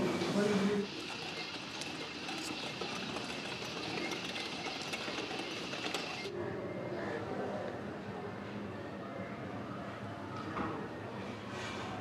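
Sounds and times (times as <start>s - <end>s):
prayer wheels rattling and squealing: 0.8s - 6.3s.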